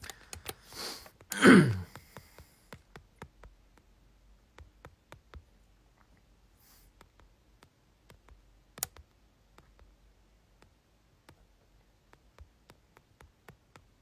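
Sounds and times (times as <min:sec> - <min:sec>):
person breathing in sharply: 0:00.0 - 0:02.6
person's falling vocal sound: 0:01.4 - 0:01.9.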